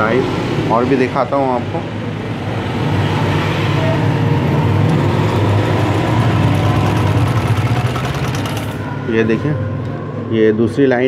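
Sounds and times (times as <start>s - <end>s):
sewing machine running: 5.0s - 8.9s.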